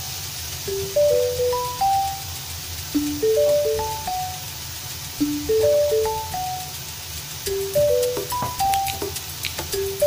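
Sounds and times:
bell-like melody: 0:00.6 - 0:04.6, 0:05.2 - 0:06.8, 0:07.4 - 0:09.2.

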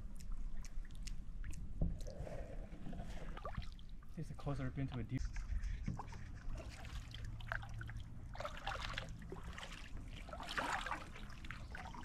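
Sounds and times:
low steady rumble: 0:00.0 - 0:12.0
paddle strokes splashing: 0:05.9 - 0:12.0
water trickling: 0:06.6 - 0:12.0.

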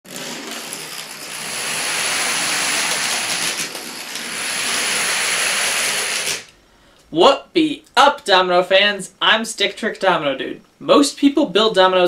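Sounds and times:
dominoes toppling on wooden floor: 0:00.1 - 0:06.5.

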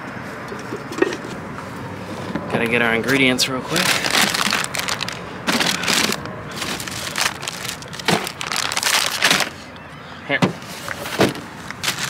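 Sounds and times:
plastic bag crinkling: 0:03.7 - 0:09.6, 0:11.7 - 0:12.0.

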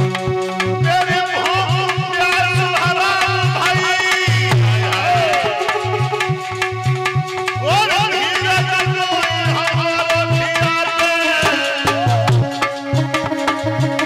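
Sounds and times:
hand drum playing: 0:00.0 - 0:14.0
held instrumental tones: 0:00.0 - 0:14.0
man singing: 0:00.7 - 0:06.4, 0:07.6 - 0:13.4.

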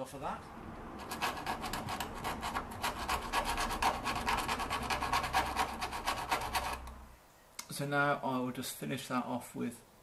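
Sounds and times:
file rasping on sheet metal: 0:01.0 - 0:06.9.

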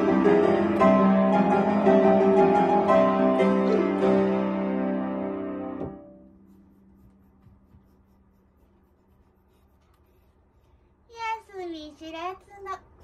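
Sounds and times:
piano chord: 0:00.0 - 0:06.6.

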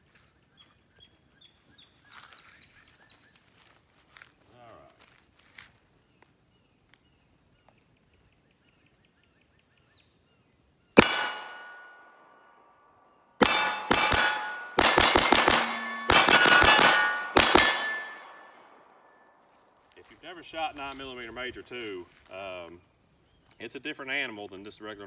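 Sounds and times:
pistol shots: 0:11.0 - 0:12.1, 0:13.4 - 0:18.8
steel plates clanging: 0:11.0 - 0:12.1, 0:13.4 - 0:18.8.

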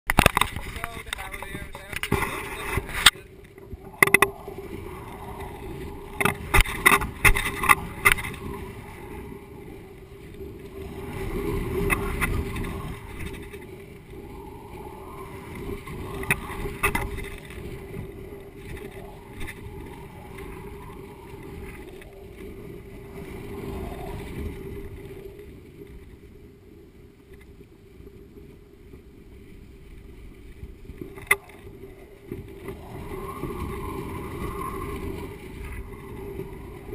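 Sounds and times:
wind buffeting microphone: 0:00.1 - 0:36.9.

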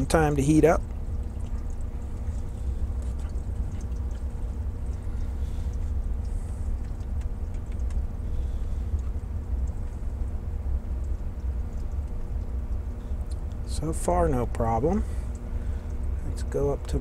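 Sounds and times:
low electrical hum: 0:00.0 - 0:17.0
faint scattered ticks: 0:00.9 - 0:13.6.

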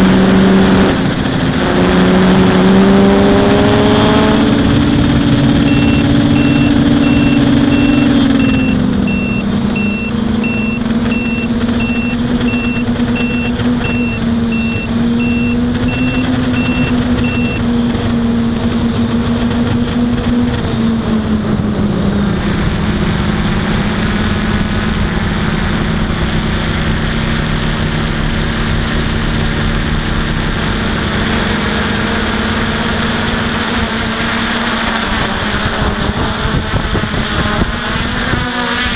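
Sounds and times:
quadcopter propellers droning: 0:00.0 - 0:38.9
high electronic beep: 0:00.2 - 0:21.0, 0:27.3 - 0:36.5.

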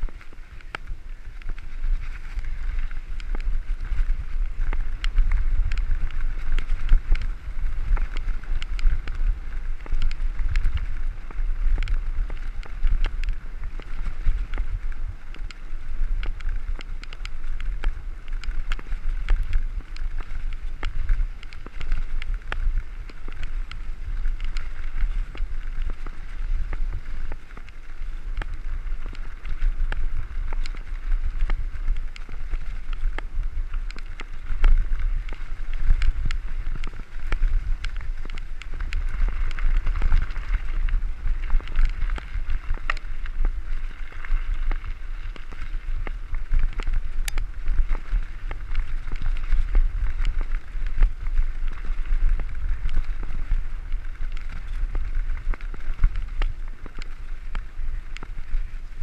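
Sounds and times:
bike rattling: 0:00.0 - 0:59.0
bike tyres crunching on gravel: 0:00.0 - 0:59.0
wind on microphone: 0:00.0 - 0:59.0.

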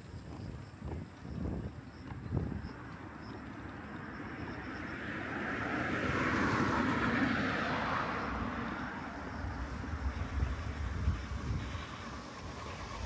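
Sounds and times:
vehicle passing by: 0:03.1 - 0:13.0.

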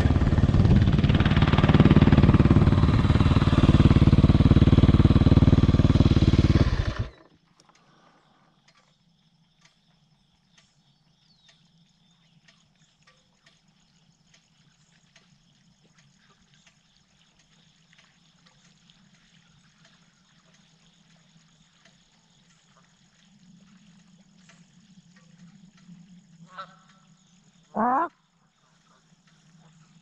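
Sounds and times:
light ticks: 0:07.5 - 0:27.7, 0:28.5 - 0:30.0.

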